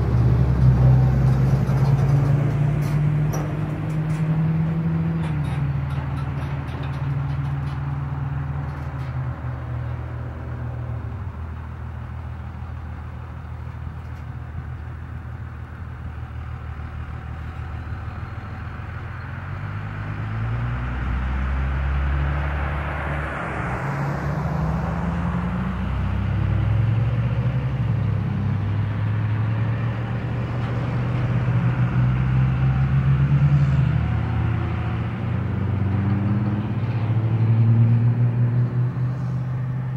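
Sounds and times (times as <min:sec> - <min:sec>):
low engine drone: 0:00.0 - 0:39.9
road traffic passing: 0:00.0 - 0:39.9
vehicle passing close: 0:00.0 - 0:39.9.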